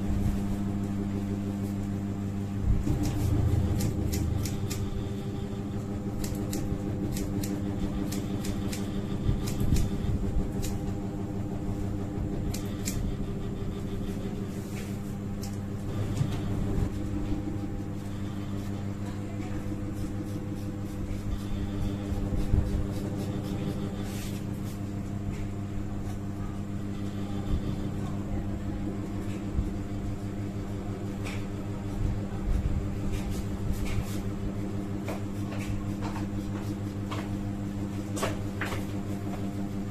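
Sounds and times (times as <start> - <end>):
steady mechanical hum: 0.0 - 39.9
scissors snipping hair: 2.9 - 5.3, 6.1 - 10.9, 12.5 - 13.2.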